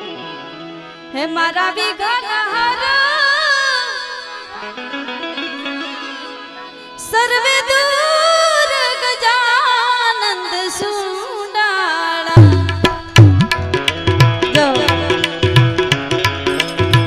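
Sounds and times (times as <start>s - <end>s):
woman singing devotional song: 1.1s - 13.4s, 14.5s - 15.7s
hand drums: 12.4s - 17.0s.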